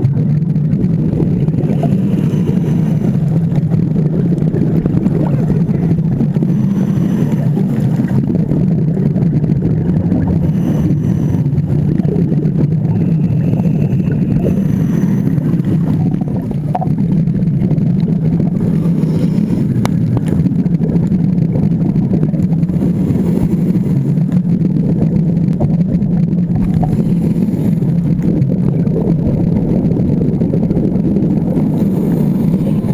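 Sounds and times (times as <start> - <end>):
low underwater rumble: 0.0 - 32.9
diver breathing hiss: 1.6 - 3.3, 6.3 - 8.2, 10.3 - 11.5, 13.6 - 16.0.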